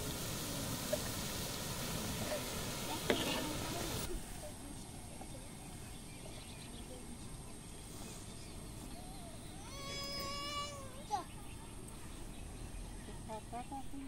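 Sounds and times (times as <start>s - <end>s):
batter frying in hot oil: 0.0s - 4.2s
faint bird chirps: 4.6s - 14.0s.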